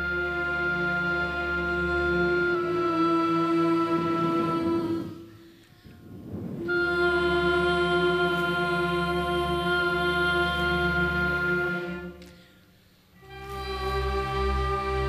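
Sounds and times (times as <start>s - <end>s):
string orchestra bowing chords: 0.0s - 5.6s, 6.6s - 15.0s.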